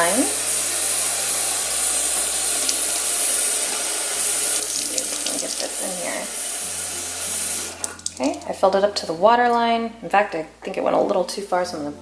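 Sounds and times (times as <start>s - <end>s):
faucet filling plastic tank: 0.0s - 8.6s.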